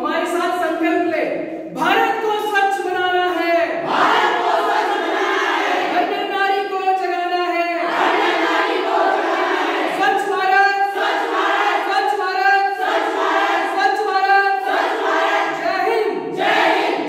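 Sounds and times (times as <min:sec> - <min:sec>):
group chanting in unison: 0:03.8 - 0:06.1, 0:07.8 - 0:17.0.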